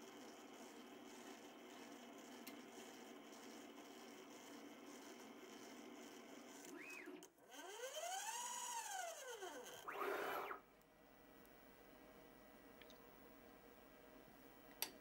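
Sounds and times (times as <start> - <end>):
stepper motor whine: 9.8 - 10.6.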